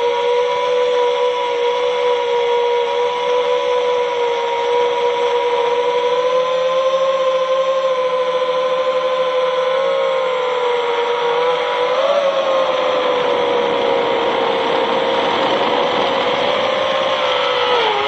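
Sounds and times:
quadcopter motors whining: 0.0s - 18.0s.

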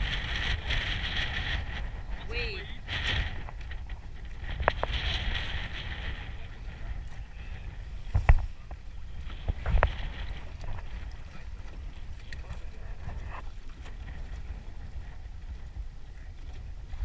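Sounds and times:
waves lapping against boat hull: 0.0s - 17.0s
wind rumble on microphone: 0.0s - 17.0s.

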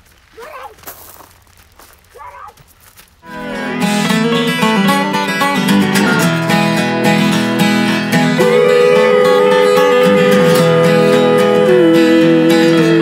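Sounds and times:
acoustic guitar music: 3.2s - 13.0s
long held melody note: 3.2s - 13.0s.

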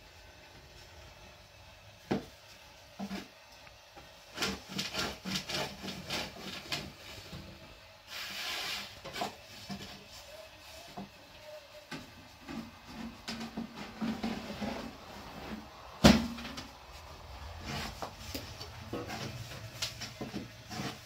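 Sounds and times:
brief hiss: 8.0s - 9.0s.

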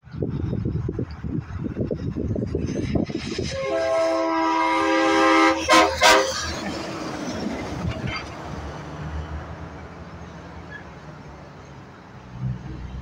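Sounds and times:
truck air horn blasts: 3.4s - 6.6s
truck engine and tyres passing: 4.4s - 13.0s.

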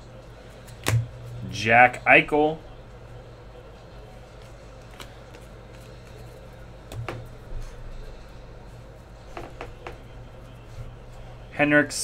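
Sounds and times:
steady low hum: 0.0s - 12.0s
trading cards flipped by hand: 4.8s - 6.2s.

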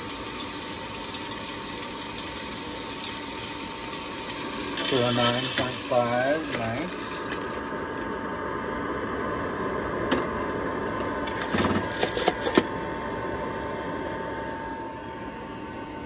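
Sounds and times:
coffee roaster whining: 0.0s - 16.0s
coffee beans rattling: 2.4s - 8.0s.

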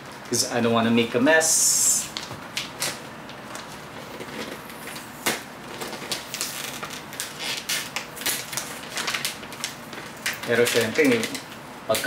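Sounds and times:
gift wrapping crinkling: 2.0s - 12.0s.

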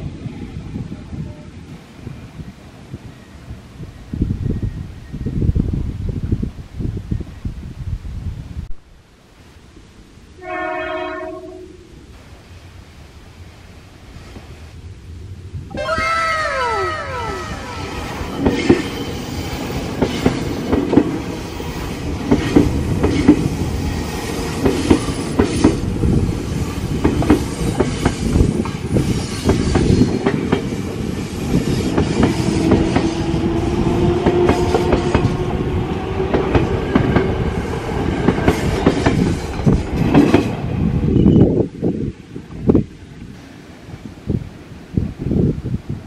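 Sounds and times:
electric train rumbling past: 0.0s - 8.6s, 9.8s - 46.0s.

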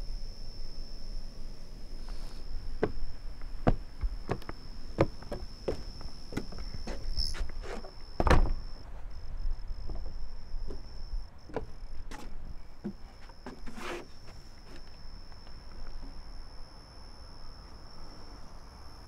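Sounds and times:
footsteps on wooden porch: 2.8s - 9.1s, 9.8s - 15.0s
heavy door thump: 8.2s - 8.6s.

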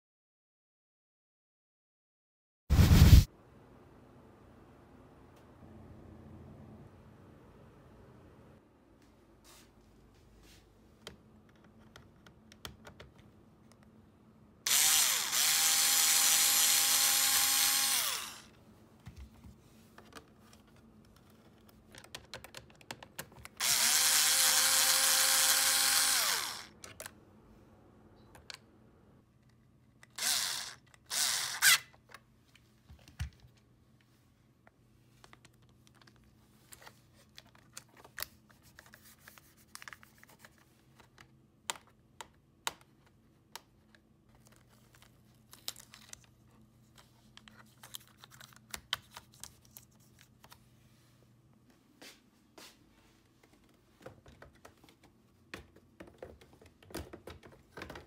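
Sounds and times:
electric screwdriver motor spinning: 14.7s - 18.5s, 23.6s - 26.8s, 30.1s - 31.9s
light clicks and handling noise: 31.9s - 50.8s.

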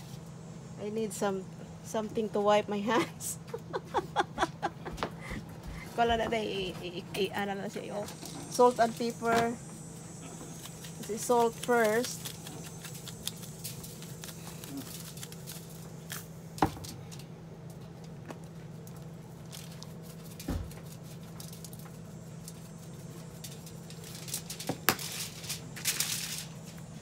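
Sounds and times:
steady low hum: 0.0s - 27.0s
grains pattering on foil: 10.5s - 17.3s, 18.7s - 27.0s.

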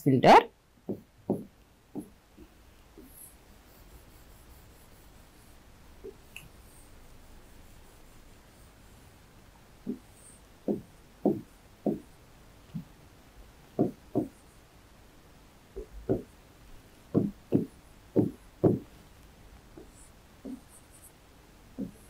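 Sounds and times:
pen knocking on writing board: 0.8s - 3.1s, 10.7s - 12.1s, 13.8s - 14.4s, 15.8s - 16.3s, 17.1s - 18.9s, 19.8s - 20.7s, 21.8s - 22.0s.

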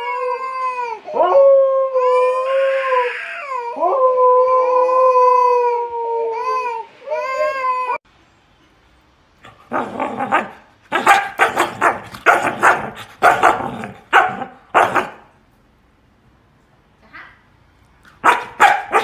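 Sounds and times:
husky barking roughly: 9.5s - 15.3s, 18.2s - 19.0s.

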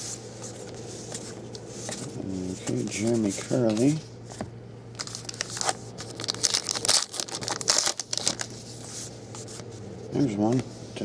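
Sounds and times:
card pack wrapper tearing and crinkling: 5.0s - 8.5s.

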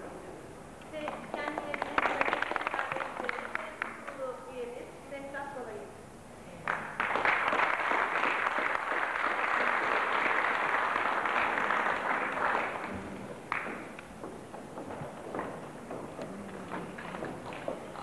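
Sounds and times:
crowd applauding: 1.0s - 4.0s, 6.7s - 14.2s, 14.8s - 18.0s.

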